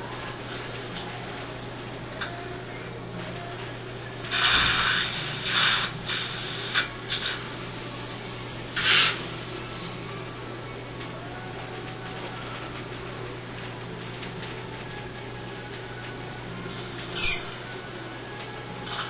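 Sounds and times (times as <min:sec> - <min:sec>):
low equipment hum: 0:00.0 - 0:19.0
short bursts of hissing: 0:04.3 - 0:10.0.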